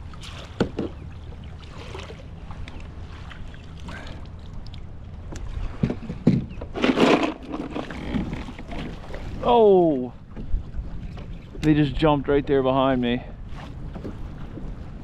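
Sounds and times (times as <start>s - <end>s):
splashing and rustling: 0.0s - 9.6s
water lapping against kayak hull: 0.0s - 15.0s
knocks on kayak: 0.6s - 1.0s.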